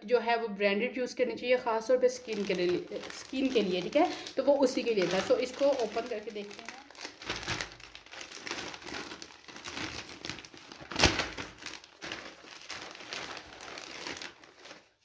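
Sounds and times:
plastic bag crinkling and rustling: 0:02.0 - 0:15.0.

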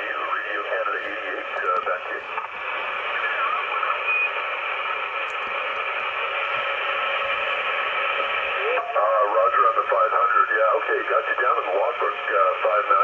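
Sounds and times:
voice over radio: 0:00.0 - 0:04.0, 0:08.5 - 0:13.0
radio static hiss: 0:00.0 - 0:13.0.

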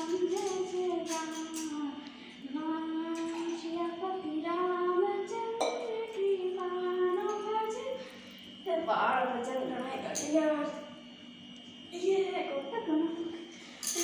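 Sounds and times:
woman singing unaccompanied: 0:00.0 - 0:08.0, 0:08.6 - 0:10.8.

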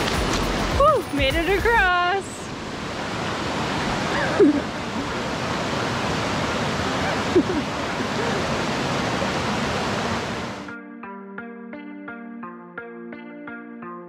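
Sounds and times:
river rushing over rocks: 0:00.0 - 0:10.7.

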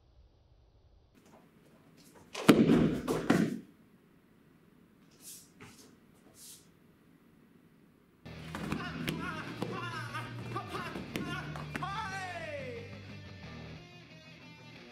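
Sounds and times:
bare feet thudding on mat: 0:01.2 - 0:03.7, 0:08.3 - 0:12.2
uniform cracking with punches: 0:02.3 - 0:03.6
faint brief hisses: 0:05.1 - 0:06.7.

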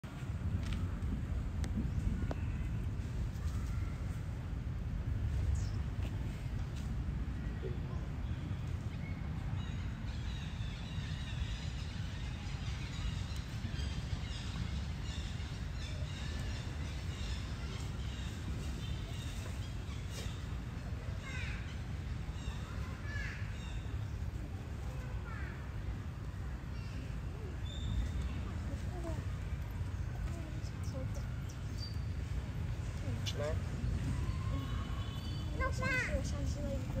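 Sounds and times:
steady low rumble: 0:00.0 - 0:19.2.

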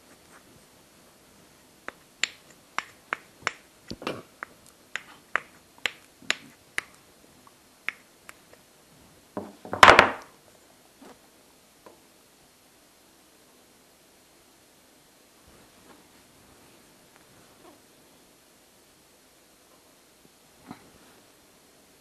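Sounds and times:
blocks clattering on workbench: 0:09.4 - 0:10.2.

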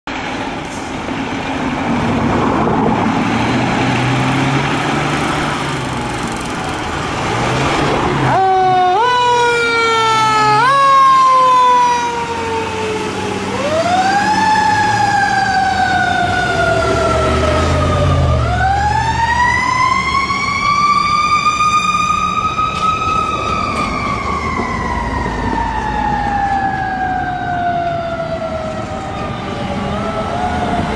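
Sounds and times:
fire truck rumble: 0:00.1 - 0:30.9
siren wailing: 0:08.2 - 0:30.9
siren yelping: 0:08.3 - 0:30.9.

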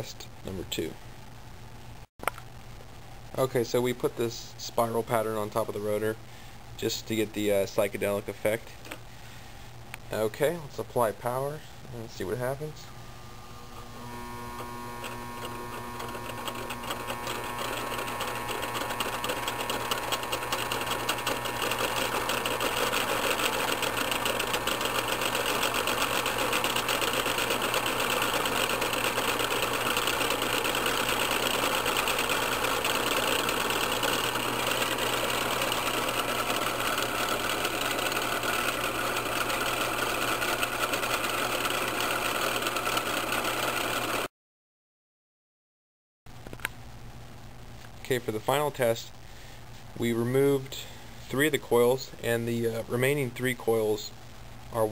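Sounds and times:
electric motor hum: 0:12.9 - 0:44.3
rotor rattling whir: 0:13.6 - 0:44.3.

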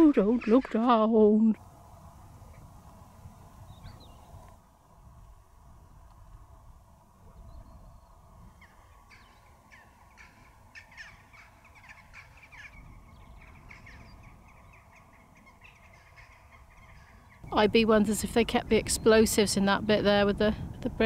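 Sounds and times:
faint bird calls: 0:03.4 - 0:04.5, 0:07.2 - 0:17.7.

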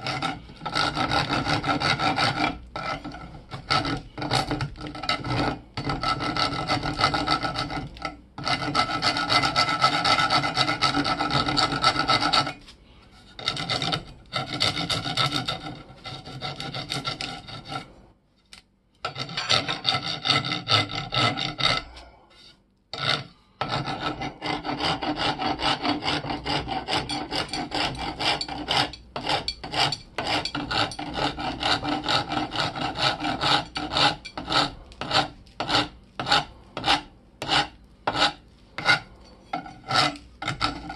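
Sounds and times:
hand file rasping on metal: 0:00.0 - 0:12.6, 0:13.2 - 0:18.0, 0:19.0 - 0:40.9.

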